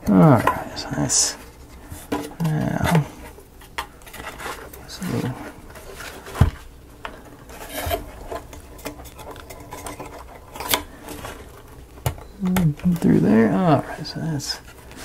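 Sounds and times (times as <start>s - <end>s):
small pieces rubbing and scraping: 0.1s - 6.5s, 7.2s - 11.9s.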